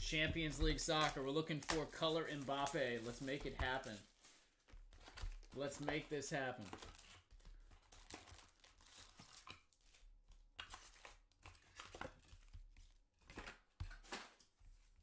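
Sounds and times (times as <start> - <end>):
foil packs crinkling: 0.7 - 10.0.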